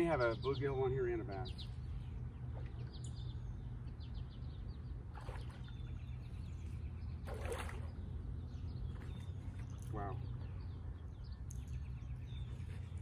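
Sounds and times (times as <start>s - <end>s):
small birds chirping: 0.0s - 13.0s
fish splashing at water surface: 7.2s - 8.0s.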